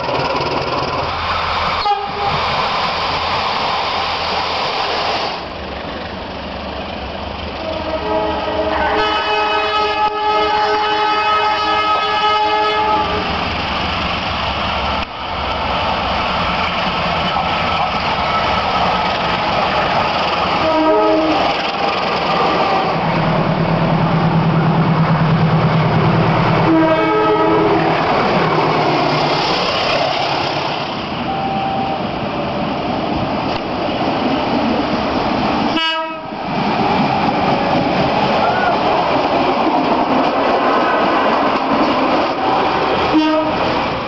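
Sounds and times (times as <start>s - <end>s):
train rumble and clatter: 0.0s - 44.0s
train horn blasts: 1.8s - 2.4s, 7.6s - 13.3s, 20.6s - 21.5s, 26.6s - 27.8s, 35.8s - 36.3s, 43.1s - 43.7s.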